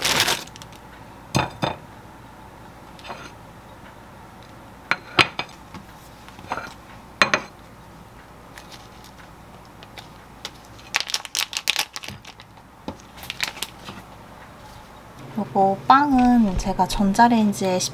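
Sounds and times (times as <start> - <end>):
plastic wrapper crinkling: 0.0 - 0.8, 9.8 - 14.0.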